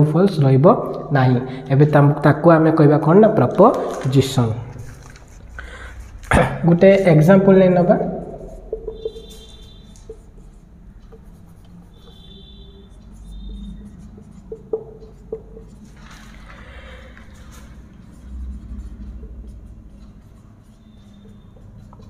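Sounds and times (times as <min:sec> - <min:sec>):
marker squeaking on whiteboard: 0:07.7 - 0:22.0
marker tip tapping: 0:08.4 - 0:10.5, 0:13.2 - 0:15.8
marker scratchy stroke: 0:08.4 - 0:22.0.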